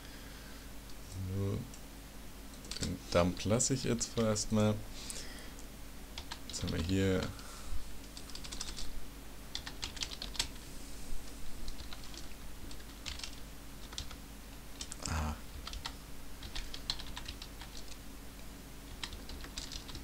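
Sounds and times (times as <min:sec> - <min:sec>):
low steady hum: 0:00.0 - 0:20.0
computer keyboard typing: 0:02.5 - 0:02.9, 0:06.2 - 0:06.9, 0:08.0 - 0:08.9, 0:09.5 - 0:10.6, 0:11.7 - 0:14.2, 0:14.8 - 0:18.0, 0:18.9 - 0:20.0.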